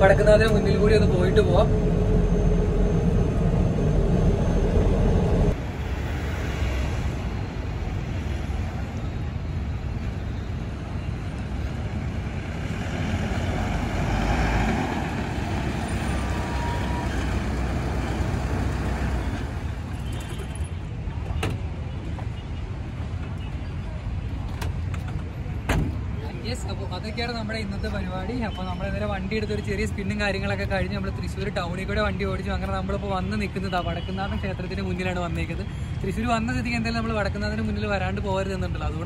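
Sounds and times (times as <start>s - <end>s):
diesel engine droning: 0.0s - 5.6s, 12.5s - 19.8s.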